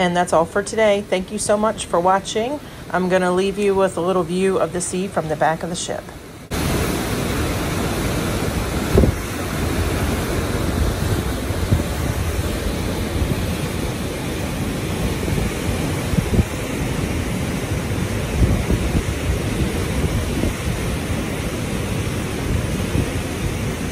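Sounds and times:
ship wake churning: 0.0 - 23.9
wind rumbling on microphone: 6.5 - 23.9.

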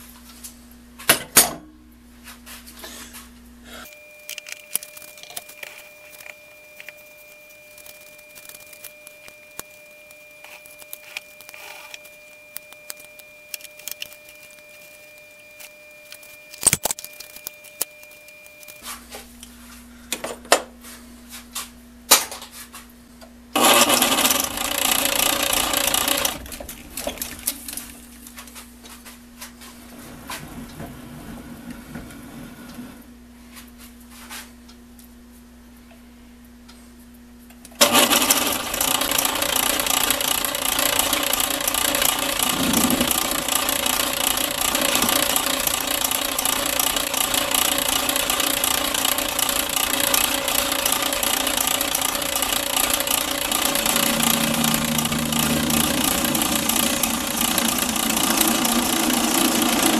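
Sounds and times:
scattered clicks: 3.9 - 18.8
metal lathe humming: 38.2 - 59.9
lathe tool cutting metal: 47.6 - 59.9.

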